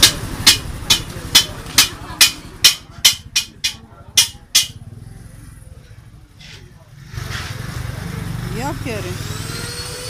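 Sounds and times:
hammer striking metal: 0.0 - 4.8.

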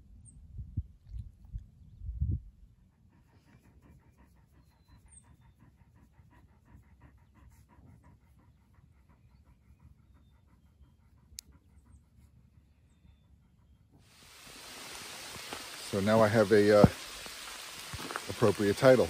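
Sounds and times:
dog panting: 2.8 - 14.0.

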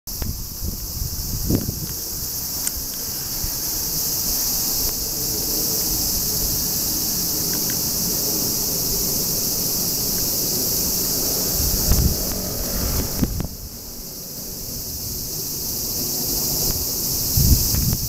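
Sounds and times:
cicadas droning: 0.1 - 18.0
low rumble: 10.0 - 15.4.

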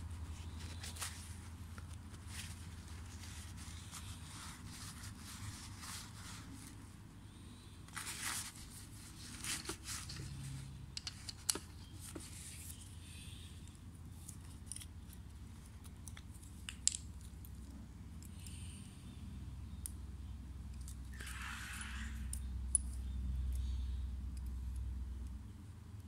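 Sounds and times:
paper towel rustling: 0.0 - 6.9, 7.9 - 10.6
metal parts clicking: 11.0 - 12.1, 14.2 - 15.2, 15.8 - 17.4.

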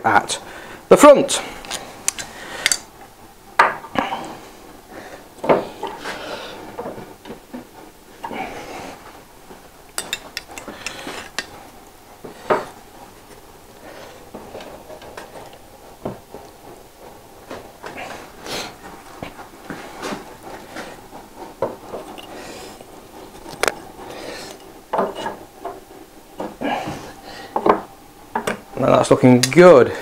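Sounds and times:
wood and metal knocks and clinks: 10.0 - 11.6, 24.5 - 25.8.

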